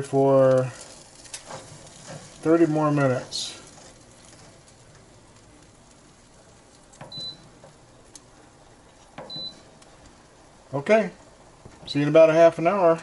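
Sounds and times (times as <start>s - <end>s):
faint steady hum: 0.0s - 13.0s
air fryer beeps with clicks: 7.0s - 7.6s, 9.2s - 9.7s.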